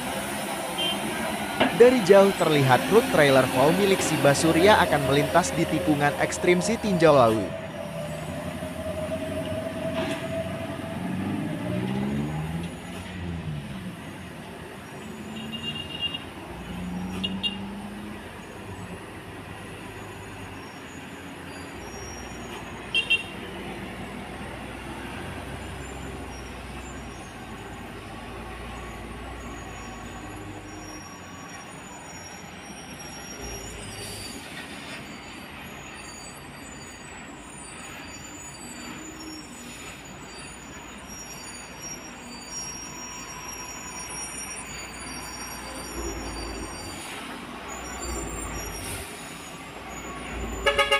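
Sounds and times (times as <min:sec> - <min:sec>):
diesel truck engines: 0:00.0 - 0:50.9.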